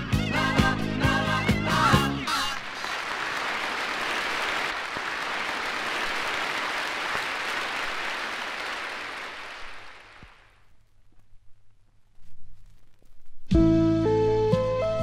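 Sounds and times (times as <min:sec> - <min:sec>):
audience applauding: 0:02.3 - 0:10.6
faint record clicks: 0:10.2 - 0:13.6.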